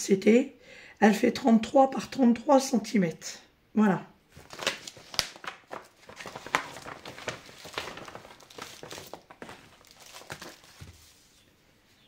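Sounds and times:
plastic pouch crinkling: 4.3 - 11.2.

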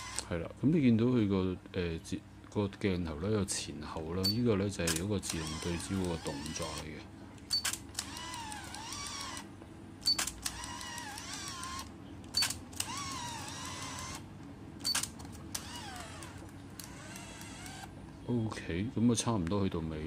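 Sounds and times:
camera motor whirring: 0.0 - 0.3, 4.8 - 14.2, 14.8 - 18.0
camera shutter click: 7.5 - 9.4, 10.0 - 14.2.

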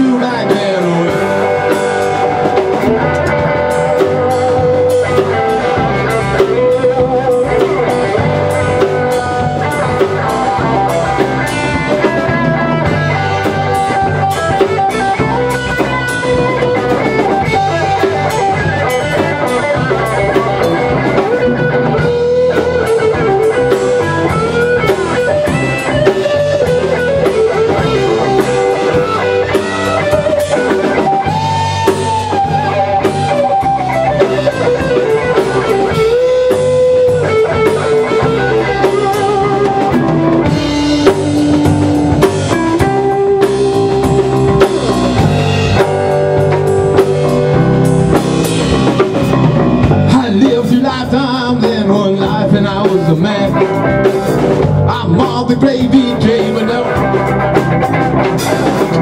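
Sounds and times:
lead electric guitar: 0.0 - 59.0
rock band playing: 0.0 - 59.0.

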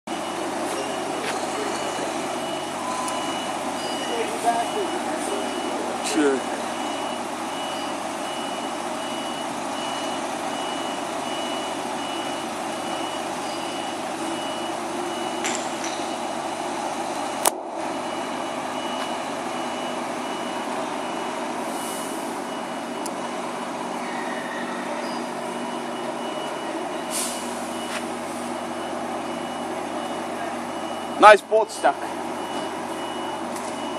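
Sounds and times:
diesel truck engines idling: 0.1 - 33.9
reversing alarm beeping: 0.1 - 33.9.

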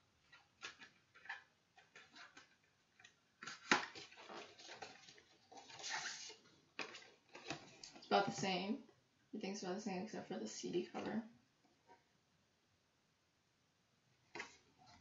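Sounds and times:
paper rustling: 0.2 - 8.4.

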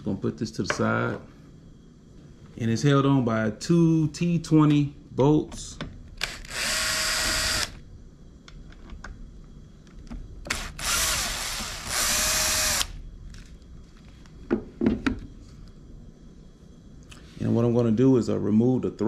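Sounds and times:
cordless drill motor whirring: 6.2 - 7.8, 10.5 - 13.0.

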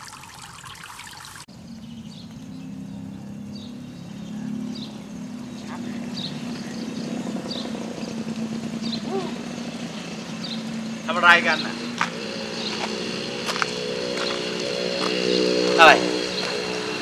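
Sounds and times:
water pouring into a basin: 0.0 - 1.5.

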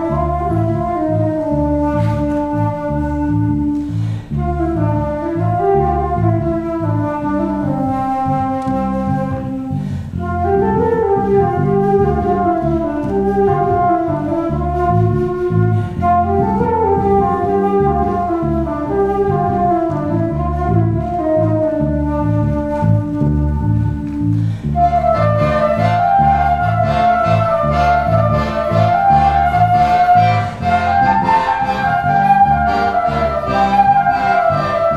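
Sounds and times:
electric bass line: 0.0 - 34.9
flute melody: 0.0 - 34.9
accordion chords: 23.7 - 34.9.

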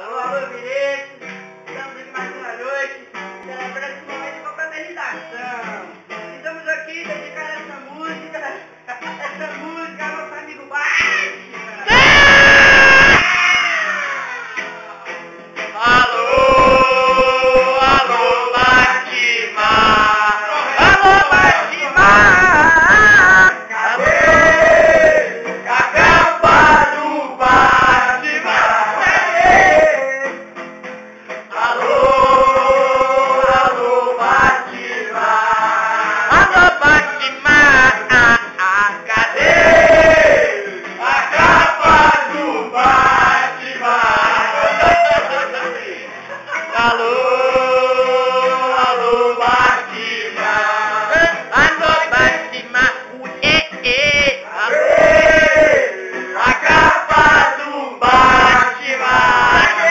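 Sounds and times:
men singing together: 15.7 - 30.5, 31.5 - 59.9
group chanting loudly: 15.8 - 30.2, 31.5 - 59.9.

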